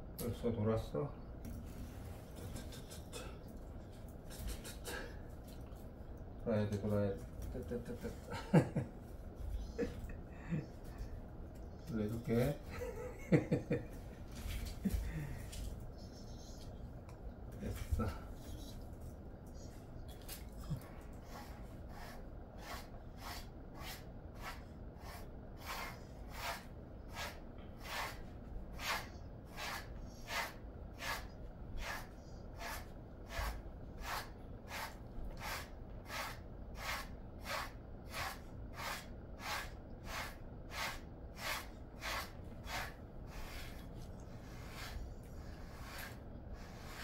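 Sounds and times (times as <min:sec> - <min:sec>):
brush stroking through dog fur: 0:21.3 - 0:28.2, 0:28.8 - 0:47.0.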